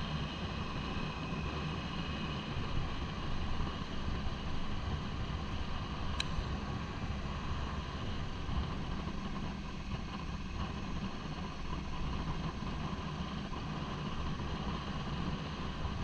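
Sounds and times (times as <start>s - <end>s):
motorcycle engine running: 0.0s - 16.0s
brief click: 6.2s - 6.6s.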